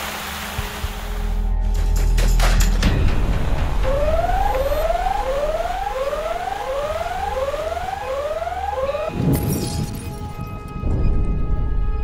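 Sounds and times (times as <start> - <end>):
whooping alarm siren: 3.8 - 9.2.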